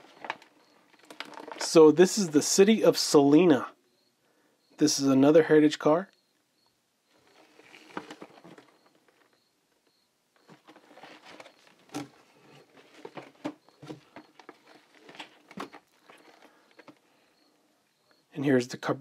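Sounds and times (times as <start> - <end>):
cardboard rustling: 0.0 - 2.4, 7.1 - 9.4, 10.4 - 17.1
boxes tapping and knocking: 10.4 - 17.0.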